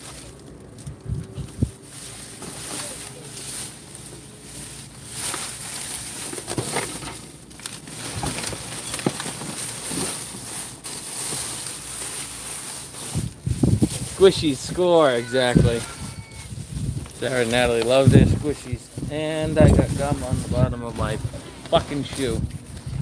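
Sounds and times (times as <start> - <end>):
small crackles: 0.0 - 15.1
plastic bags crinkling: 0.0 - 23.0.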